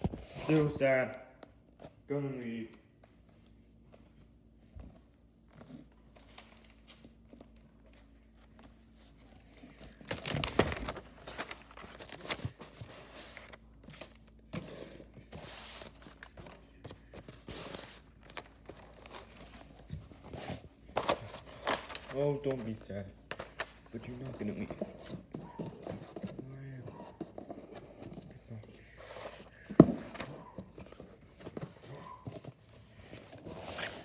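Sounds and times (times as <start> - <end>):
wrapping paper crinkling: 9.7 - 14.4, 20.9 - 24.6.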